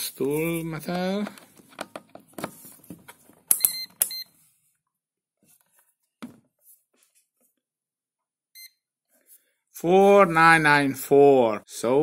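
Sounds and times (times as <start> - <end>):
multimeter high beeps: 3.5 - 4.3.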